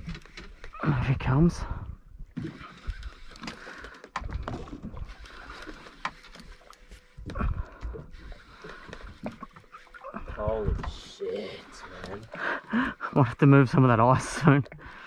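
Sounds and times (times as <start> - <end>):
water sloshing against boat hull: 1.9 - 15.0
fishing reel cranking with clicks: 2.7 - 4.1.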